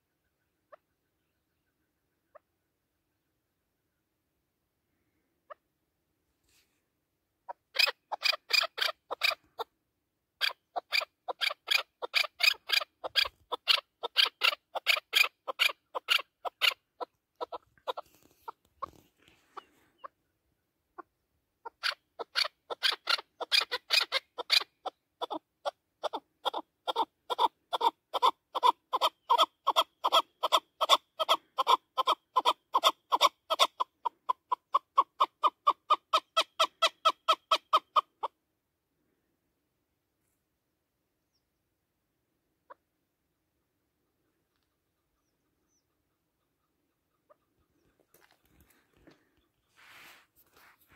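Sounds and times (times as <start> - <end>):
partridge calling: 7.4 - 9.7, 10.4 - 38.4, 43.5 - 50.2.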